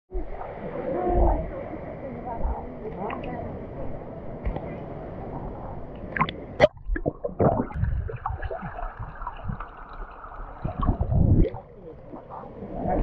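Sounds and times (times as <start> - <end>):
muffled low underwater surges: 0.1 - 13.0
water sloshing and gurgling: 0.1 - 13.0
water splashes: 5.4 - 13.0.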